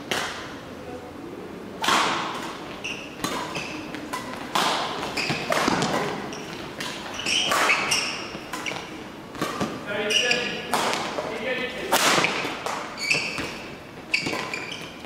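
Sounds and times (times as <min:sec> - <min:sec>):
rackets hitting shuttlecock: 0:00.0 - 0:00.4, 0:01.8 - 0:15.0
shoes squeaking on court: 0:02.3 - 0:11.4, 0:12.1 - 0:15.0.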